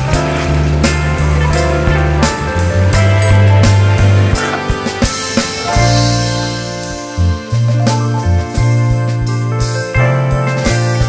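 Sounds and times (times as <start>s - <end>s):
background music with bass: 0.0s - 11.0s
drum hits: 0.2s - 9.0s.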